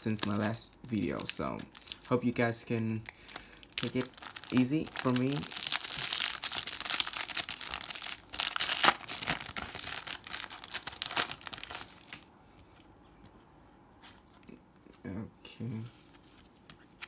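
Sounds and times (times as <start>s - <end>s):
foil wrapper crinkling and tearing: 0.0s - 12.3s.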